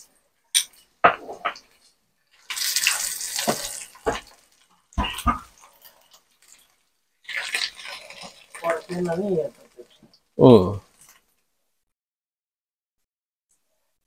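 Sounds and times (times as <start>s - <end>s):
meat sizzling in a frying pan: 2.3s - 10.0s.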